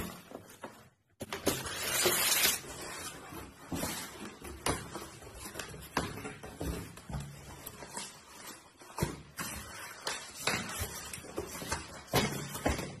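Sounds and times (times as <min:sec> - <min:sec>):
paper and styrofoam rustling: 0:00.0 - 0:05.6.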